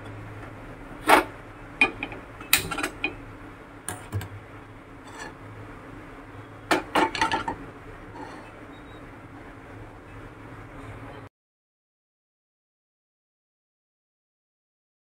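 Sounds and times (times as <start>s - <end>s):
pan knocking on metal supports: 6.7s - 7.6s.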